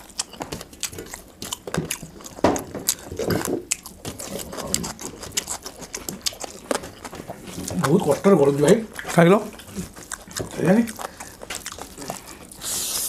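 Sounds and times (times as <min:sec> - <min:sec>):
chewing and lip smacks: 0:00.0 - 0:13.0.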